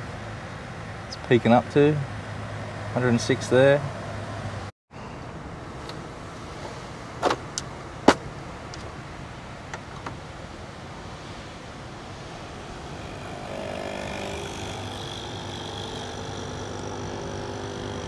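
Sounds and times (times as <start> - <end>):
coffee machine pump buzzing: 12.0 - 18.0.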